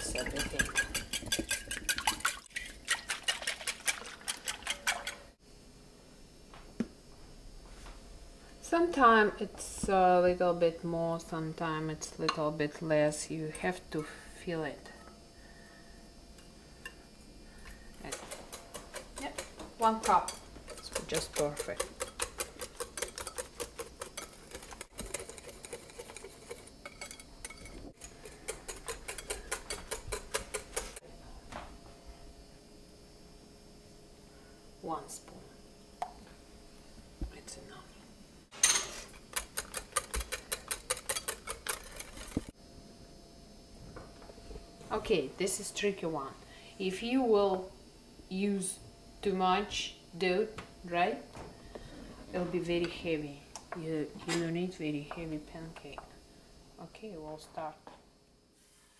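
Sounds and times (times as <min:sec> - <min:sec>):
whisk clicking against glass bowl: 0:00.0 - 0:05.2, 0:18.1 - 0:31.0, 0:39.3 - 0:42.4.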